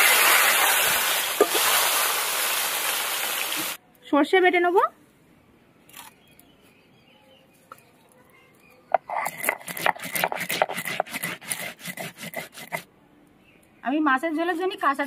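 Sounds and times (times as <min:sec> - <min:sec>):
stone roller grinding seeds: 0:08.9 - 0:12.8.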